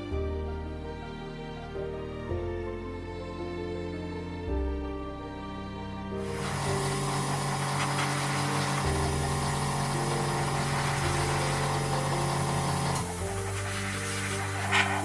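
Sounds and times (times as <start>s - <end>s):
slow sustained background music: 0.0s - 15.0s
steady hiss: 6.2s - 15.0s.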